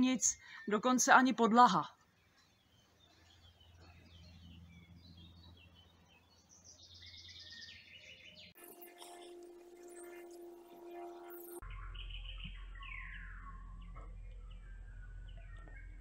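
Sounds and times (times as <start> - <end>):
faint birds chirping: 0.0 - 16.0
steady held tone: 8.6 - 11.6.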